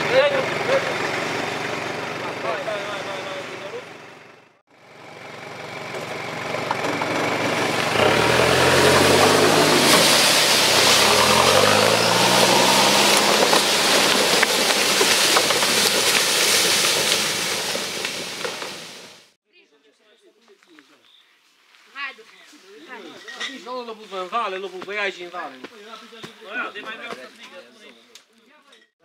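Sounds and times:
buggy engine revving: 0.0s - 19.4s
logs scraping on dirt: 5.8s - 19.4s.

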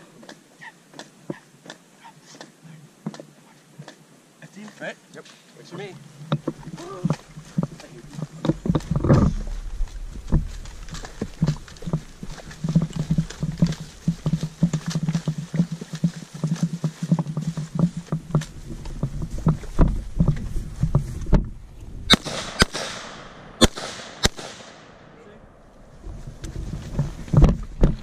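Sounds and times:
running footsteps: 6.1s - 21.6s
rifle shots echoing: 22.1s - 25.7s.

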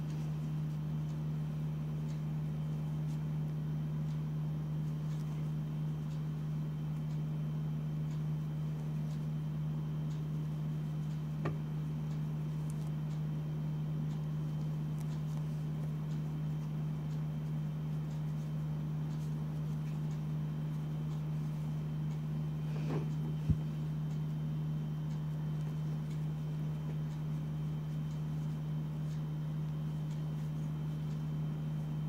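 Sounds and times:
faint light ticks: 0.0s - 22.4s, 23.1s - 32.0s
steady low hum: 0.0s - 32.0s.

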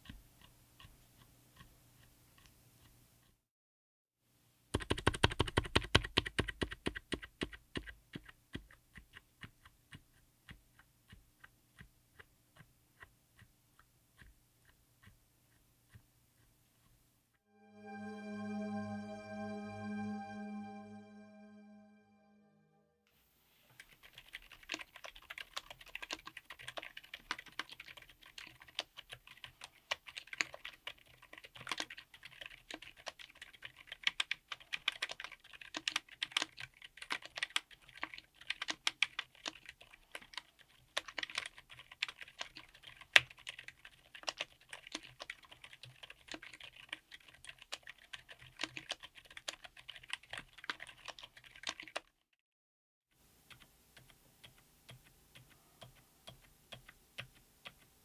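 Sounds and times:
keyboard typing: 4.8s - 16.1s, 23.7s - 52.1s, 53.4s - 58.0s.

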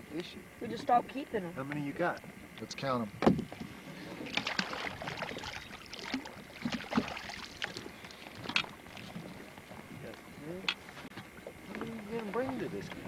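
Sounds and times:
knock against boat: 3.2s - 3.7s
water splashing and dripping: 4.3s - 9.2s.

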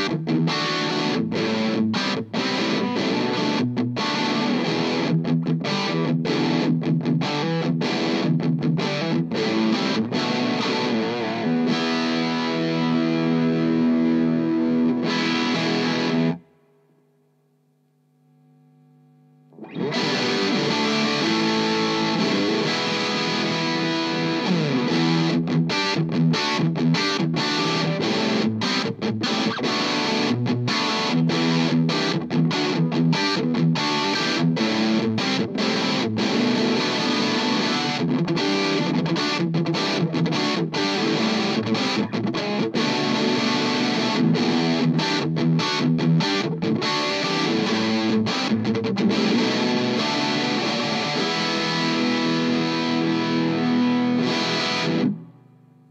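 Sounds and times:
distorted electric guitar riffs: 0.0s - 55.9s.

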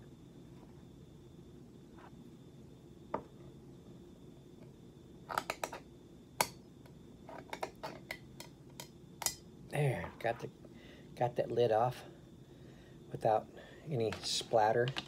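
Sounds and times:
can lid clicking and cracking: 5.3s - 5.8s.

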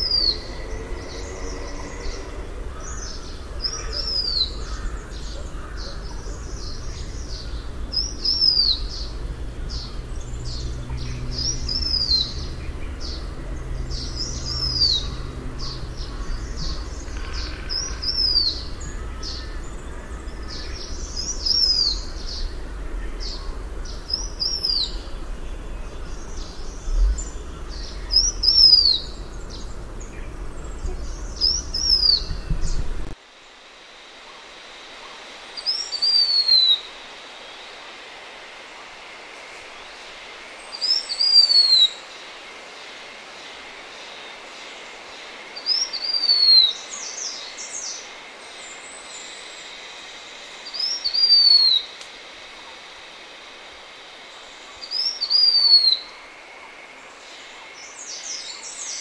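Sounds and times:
steady low rumble: 0.0s - 33.2s.

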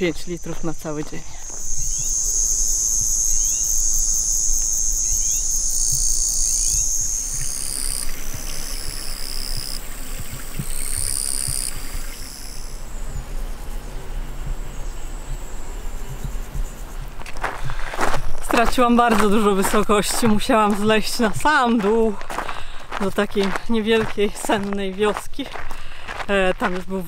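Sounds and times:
crickets and insects trilling: 0.0s - 27.0s
low rumble: 12.2s - 18.4s.

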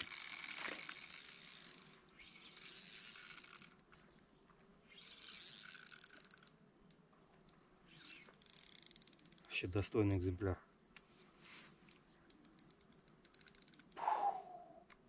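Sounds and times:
fishing reel whirring and clicking: 0.0s - 4.3s, 4.9s - 9.6s, 12.3s - 14.0s.

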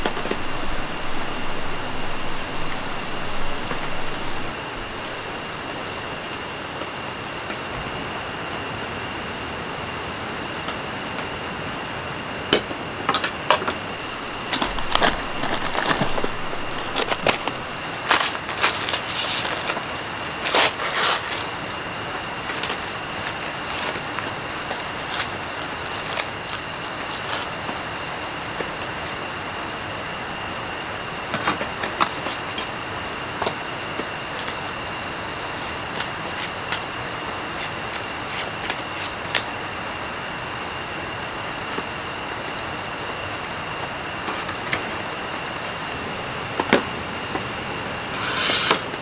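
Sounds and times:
plastic wrapper crinkling: 0.0s - 6.3s, 14.0s - 27.5s
rain hissing: 0.0s - 10.4s, 13.8s - 27.1s.

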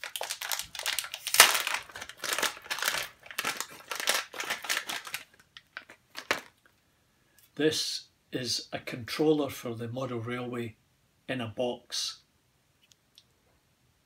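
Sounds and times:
plastic wrapping crinkling: 0.0s - 6.7s.

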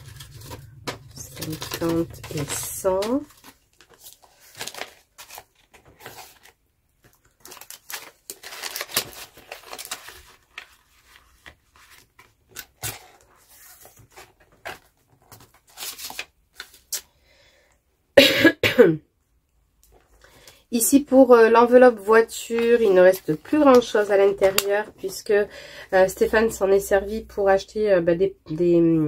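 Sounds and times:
banknotes and plastic sleeves rustling: 0.0s - 17.2s, 19.8s - 27.6s
person coughing: 18.2s - 19.0s.

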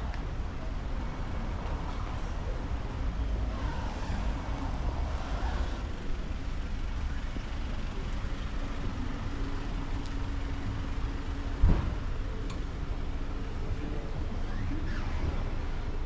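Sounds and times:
vehicle engine rumbling: 0.0s - 16.0s
thump: 11.6s - 12.1s.

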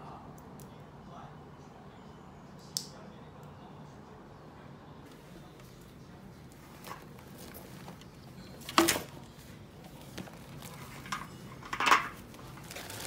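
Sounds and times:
canvas bag rustling: 6.6s - 9.1s, 12.2s - 13.0s.

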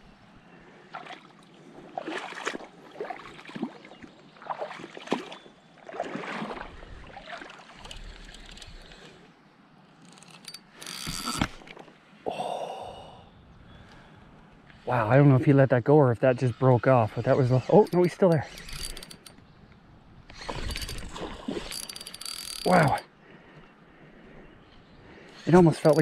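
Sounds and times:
river water sloshing and splashing: 0.7s - 12.2s, 20.3s - 22.5s.

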